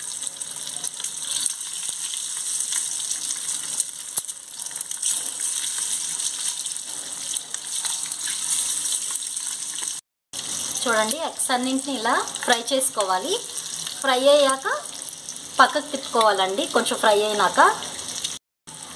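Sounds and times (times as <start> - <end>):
oil popping and crackling: 0.0 - 10.6
hot oil sizzling in a pan: 0.0 - 18.9.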